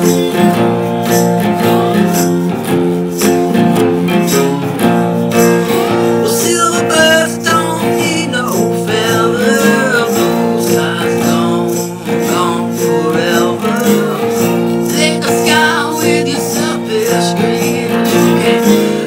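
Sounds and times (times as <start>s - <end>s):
strummed acoustic guitar: 0.0s - 19.0s
wavering melody line: 0.0s - 19.0s.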